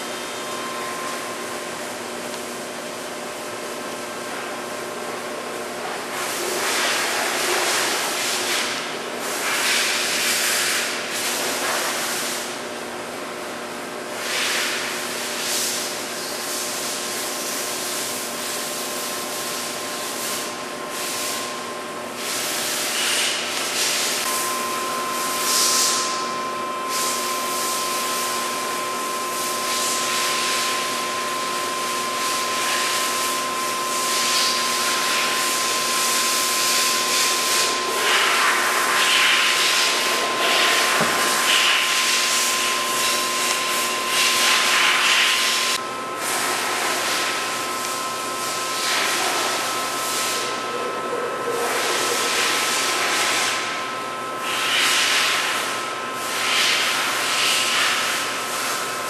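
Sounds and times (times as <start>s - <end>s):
high mechanical whine: 0.0s - 12.9s, 13.6s - 59.0s
lathe running: 23.4s - 38.1s.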